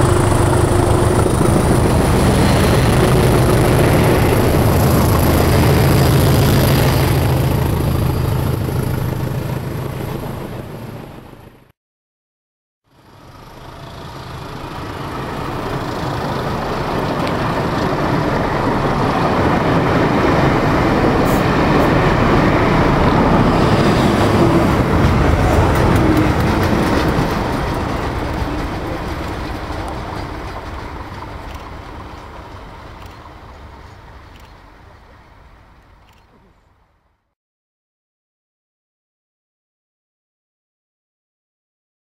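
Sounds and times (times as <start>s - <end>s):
train wheels rolling on rails: 13.4s - 36.5s.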